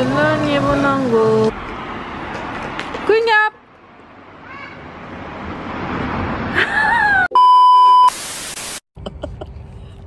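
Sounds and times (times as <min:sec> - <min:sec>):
high beep: 0:07.3 - 0:08.2
loud static burst: 0:08.1 - 0:08.8.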